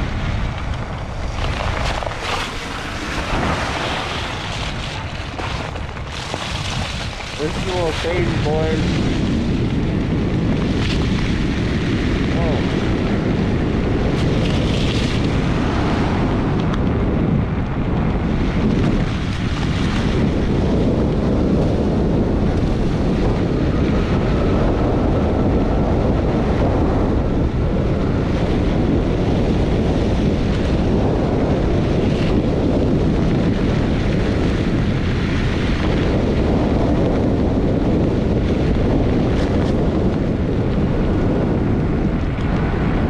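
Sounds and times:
tyres rolling over wet pavement: 0.0s - 8.8s
wind rumbling on microphone: 0.0s - 43.0s.

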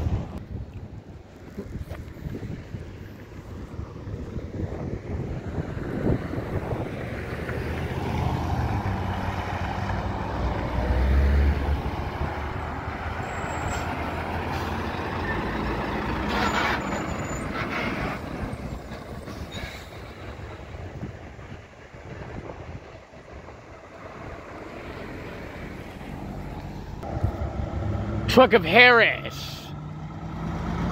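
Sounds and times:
truck driving past: 4.8s - 30.9s
air brakes hissing: 19.2s - 20.2s.

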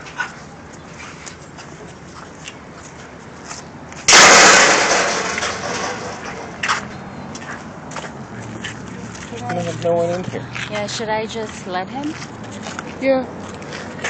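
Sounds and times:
loud rush of noise: 4.1s - 7.3s.

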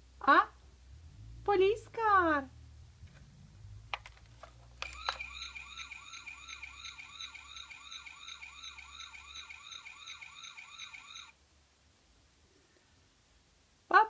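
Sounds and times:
toy button clicks: 4.8s - 5.4s
steady high tone: 4.8s - 11.3s
toy siren warbling wail: 4.8s - 11.3s.

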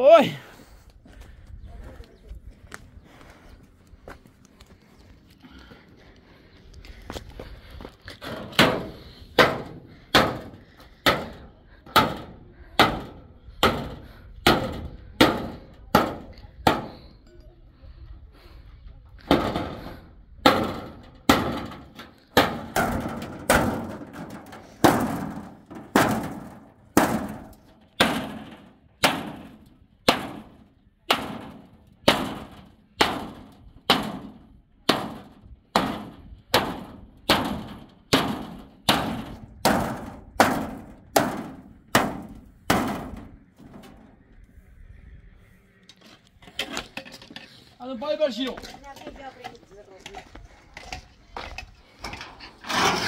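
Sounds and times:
hammer on metal sheet: 8.4s - 17.0s, 19.3s - 44.0s.

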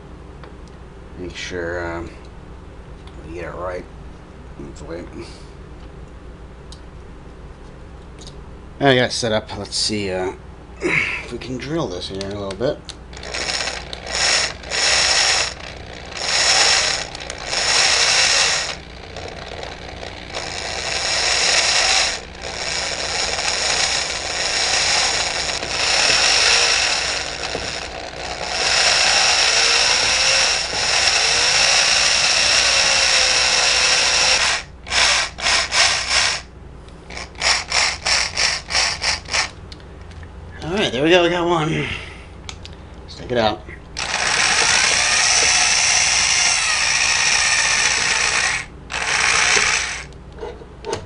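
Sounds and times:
electric drill boring into metal: 13.1s - 36.5s, 37.1s - 39.5s, 44.0s - 50.1s.

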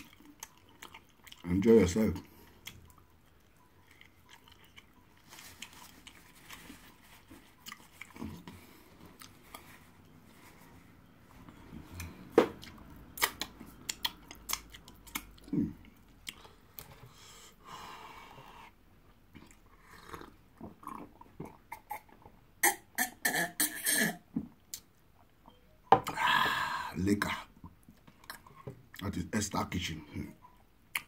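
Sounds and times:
chewing and wet mouth sounds: 0.0s - 10.4s, 11.0s - 17.0s, 19.1s - 22.3s.

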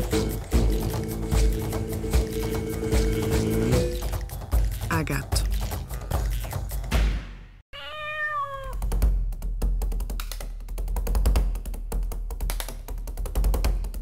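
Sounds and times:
music with quick tapping percussion: 0.0s - 7.2s, 8.8s - 14.0s
cat meowing: 7.8s - 8.8s.

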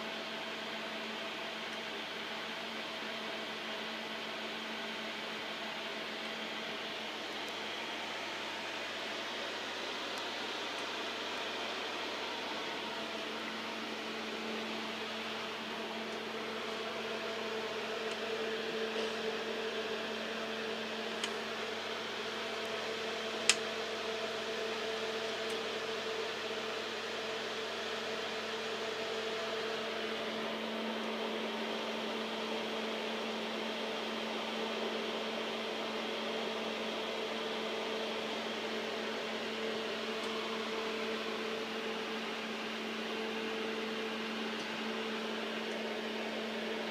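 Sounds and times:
cooling equipment humming: 0.0s - 46.9s.

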